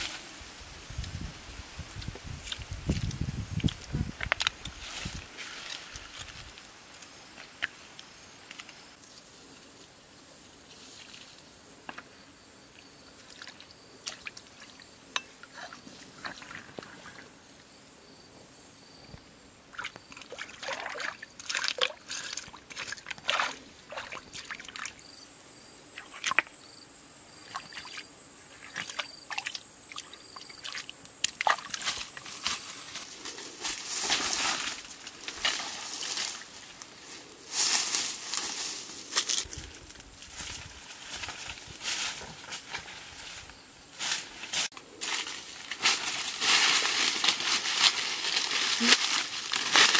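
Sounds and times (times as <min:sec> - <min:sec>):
water splashing and sloshing: 0:19.7 - 0:25.0, 0:27.4 - 0:32.3.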